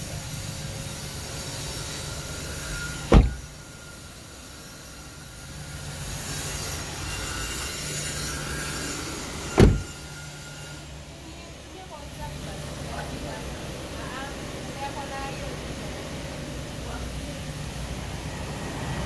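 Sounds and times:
car door shutting: 0:03.1 - 0:03.5, 0:09.6 - 0:10.0.

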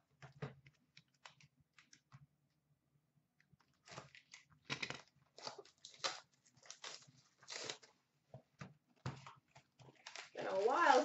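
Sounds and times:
cellophane wrap crinkling: 0:03.7 - 0:08.0, 0:09.2 - 0:11.0.

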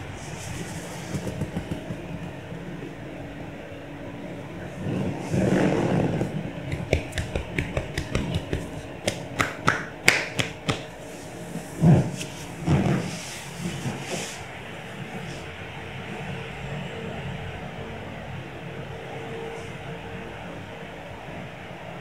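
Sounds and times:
quick sharp taps: 0:01.1 - 0:02.3, 0:06.7 - 0:10.9.

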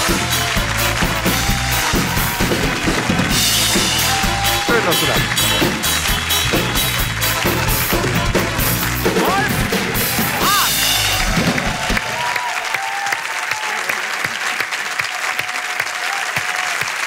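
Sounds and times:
band playing upbeat tune: 0:00.0 - 0:12.4
audience applause: 0:00.0 - 0:17.0.

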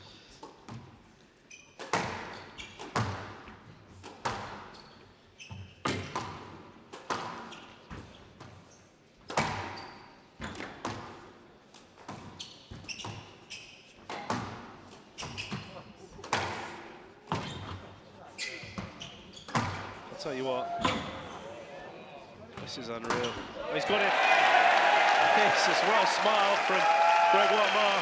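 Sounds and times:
court shoes squeaking: 0:00.0 - 0:21.6, 0:22.2 - 0:23.6
squash ball hitting rackets and walls: 0:00.3 - 0:08.6, 0:09.2 - 0:17.9, 0:18.6 - 0:20.1, 0:22.6 - 0:23.6.

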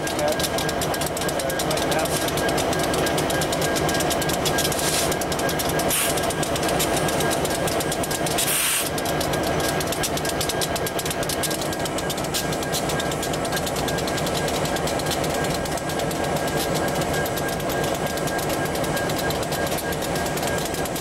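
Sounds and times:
diesel locomotive engine rumble: 0:00.0 - 0:21.0
air hissing: 0:05.9 - 0:06.2, 0:08.4 - 0:08.9.

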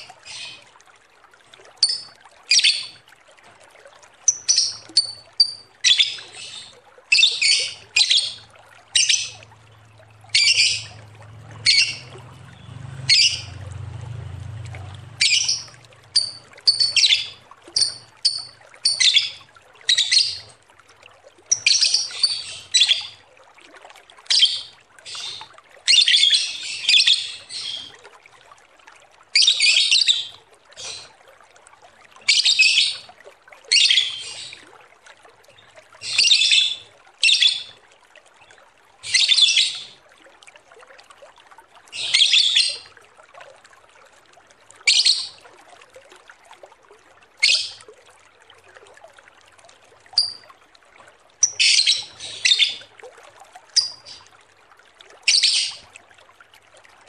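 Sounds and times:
lovebird chattering shrill calls: 0:01.8 - 0:02.8, 0:10.3 - 0:10.9, 0:11.6 - 0:12.1, 0:15.2 - 0:20.4.

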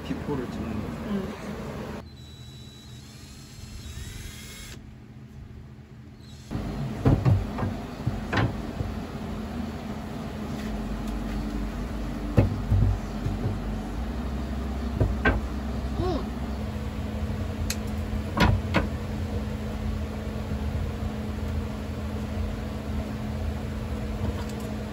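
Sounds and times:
steady low hum: 0:00.0 - 0:24.9
wooden boards knocking on metal: 0:06.9 - 0:08.9, 0:12.3 - 0:13.7, 0:15.0 - 0:15.5.

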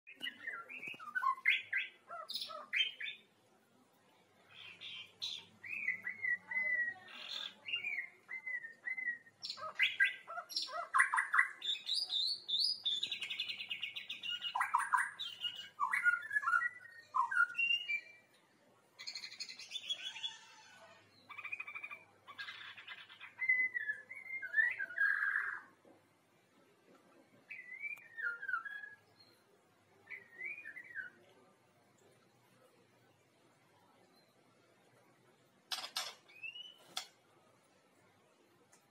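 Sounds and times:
bird singing whistles and chirps: 0:00.1 - 0:03.2, 0:04.5 - 0:18.3, 0:21.2 - 0:25.7, 0:27.5 - 0:29.4, 0:30.0 - 0:31.2, 0:36.3 - 0:37.0.

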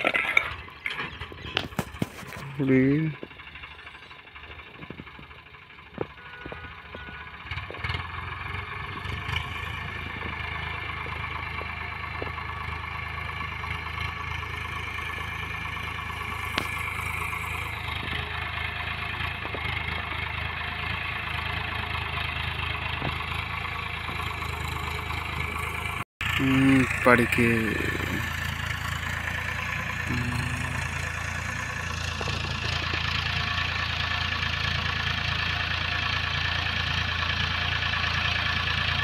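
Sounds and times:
tractor diesel engine running: 0:00.0 - 0:39.0.

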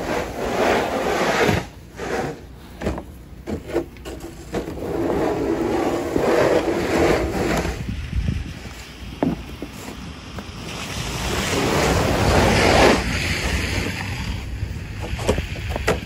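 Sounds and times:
brush sweeping snow: 0:00.0 - 0:14.5.

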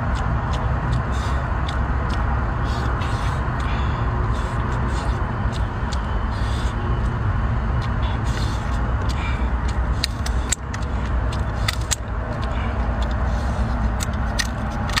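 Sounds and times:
steady low rumble: 0:00.0 - 0:15.0
scissors cracking crab shell: 0:14.0 - 0:15.0.

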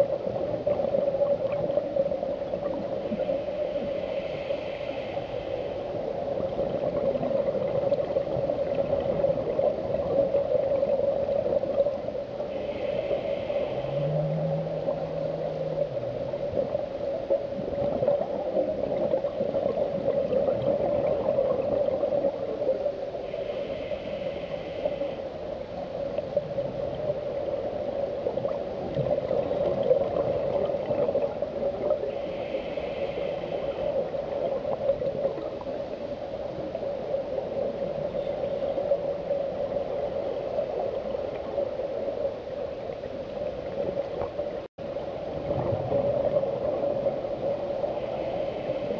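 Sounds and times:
underwater droning hum: 0:00.0 - 0:48.9
scuba regulator hissing breath: 0:03.4 - 0:06.0, 0:12.5 - 0:14.2, 0:23.3 - 0:25.2, 0:32.2 - 0:34.0.

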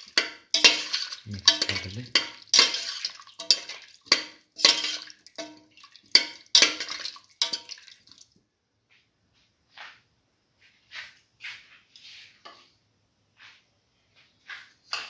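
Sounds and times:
spoon clinking against metal pot: 0:00.0 - 0:07.9
spoon stirring broth splashing: 0:00.0 - 0:08.4.

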